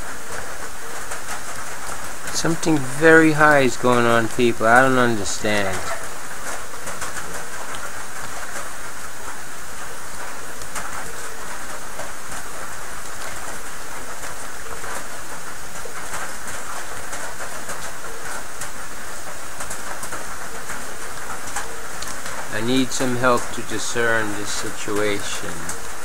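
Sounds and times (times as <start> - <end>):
rain falling steadily: 0.0 - 26.0.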